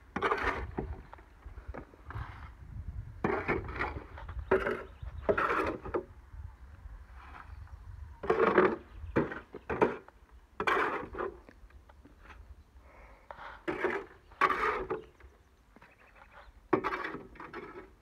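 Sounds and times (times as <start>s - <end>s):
shovel scraping wet concrete: 0.1s - 1.0s, 3.2s - 5.9s, 8.2s - 11.4s, 13.4s - 15.1s, 16.8s - 18.0s.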